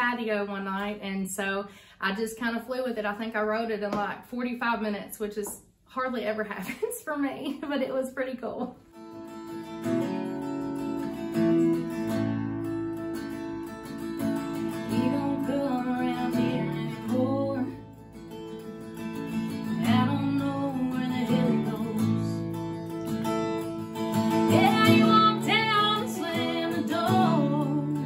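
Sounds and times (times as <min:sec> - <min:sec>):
strummed acoustic guitar: 0:08.8 - 0:28.0
woman singing: 0:14.7 - 0:17.9, 0:19.6 - 0:22.4, 0:24.3 - 0:28.0.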